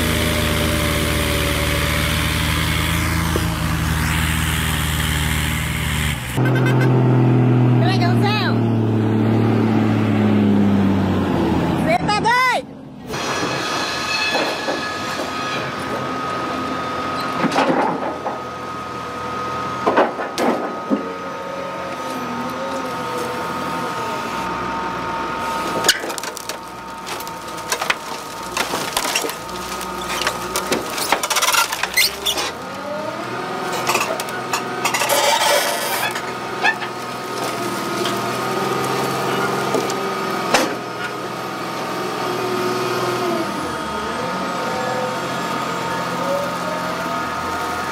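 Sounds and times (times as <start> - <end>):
diesel engine and hydraulics whine: 0.0 - 47.9
logs and steel clanking: 13.1 - 47.9.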